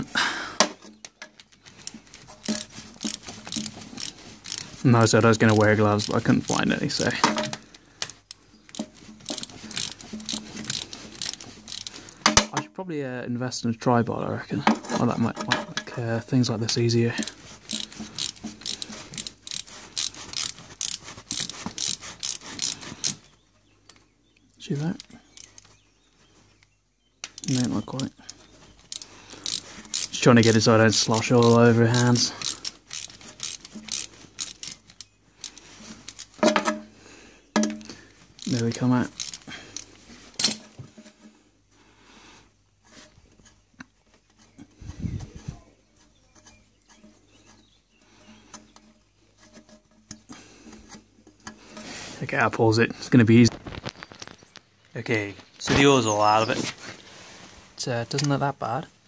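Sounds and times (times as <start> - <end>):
handling ticks and rubbing: 0.0 - 12.5, 13.6 - 59.0
socket ratchet clicking: 1.4 - 4.7, 8.0 - 12.2, 17.7 - 23.2, 28.8 - 36.4.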